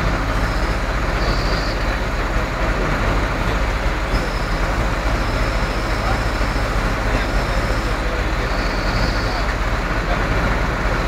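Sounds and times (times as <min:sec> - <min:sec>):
heavy diesel engine rumbling: 0:00.0 - 0:11.0.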